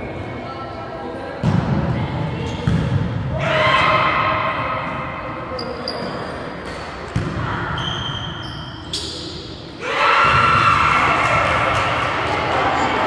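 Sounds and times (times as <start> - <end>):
players shouting: 3.3 - 4.9, 9.8 - 13.0.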